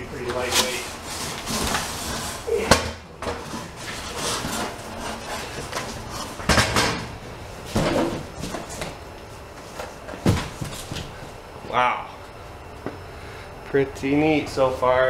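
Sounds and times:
cardboard rustling and scraping: 0:00.2 - 0:02.5, 0:03.2 - 0:06.5.

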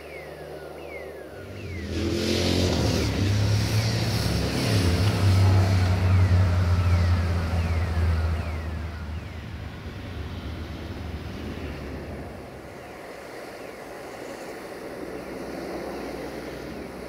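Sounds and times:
diesel locomotive engine running: 0:03.2 - 0:12.9.

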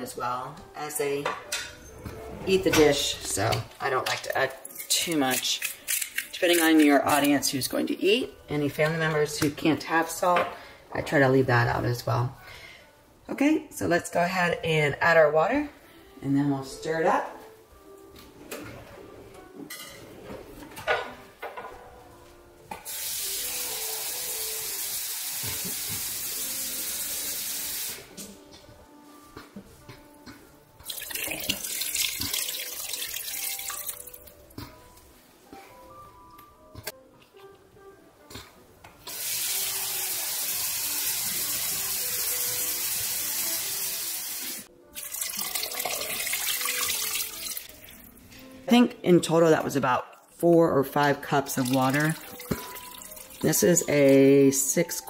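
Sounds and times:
tap water filling cup: 0:30.8 - 0:34.1, 0:45.0 - 0:47.8
faucet running into cup: 0:30.8 - 0:34.3, 0:39.1 - 0:48.1, 0:51.5 - 0:54.1.

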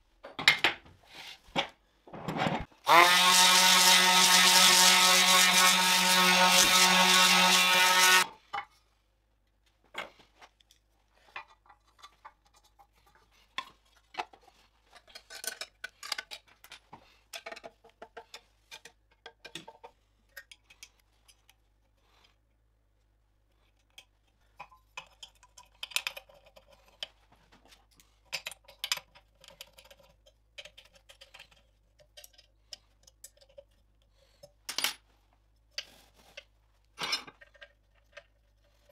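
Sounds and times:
power tool with spinning wheel: 0:02.8 - 0:08.3.

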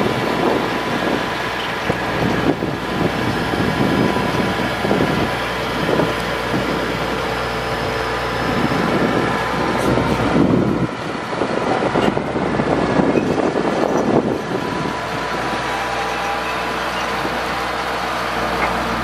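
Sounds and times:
hydraulic whine: 0:00.0 - 0:19.0
truck engine running: 0:00.0 - 0:19.0.

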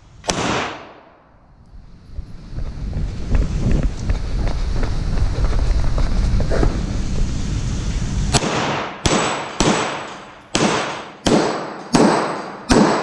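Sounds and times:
pistol shots with reverberation: 0:00.2 - 0:01.2, 0:08.3 - 0:13.0.

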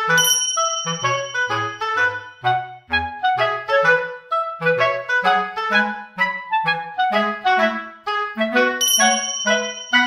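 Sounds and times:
bouncy instrumental melody: 0:00.0 - 0:10.0.

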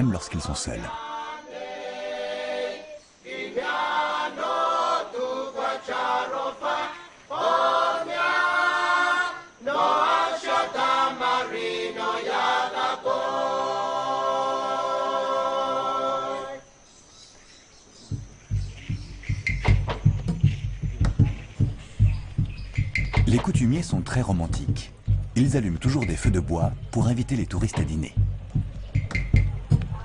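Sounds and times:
group singing chant unaccompanied: 0:00.8 - 0:16.8.

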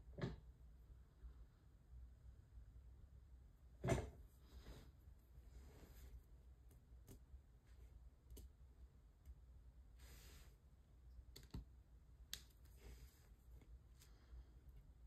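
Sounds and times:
faint clicks and taps of pen: 0:11.3 - 0:11.7.

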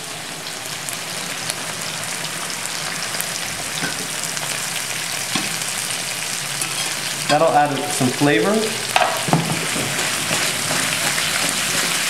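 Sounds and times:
potatoes sizzling in oil: 0:00.0 - 0:12.0
butter crackling: 0:08.8 - 0:12.0.

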